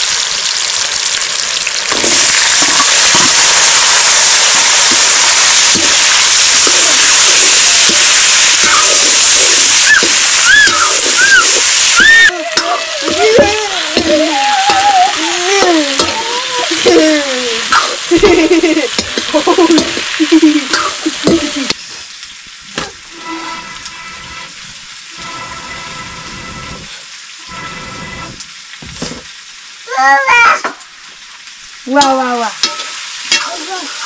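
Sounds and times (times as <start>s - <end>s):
food sizzling in a pan: 0.0s - 34.0s
person crooning without words: 12.3s - 17.7s.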